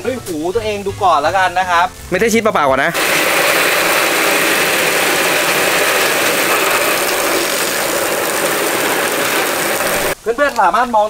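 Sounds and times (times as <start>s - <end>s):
water spray on metal roofing: 2.9s - 10.8s.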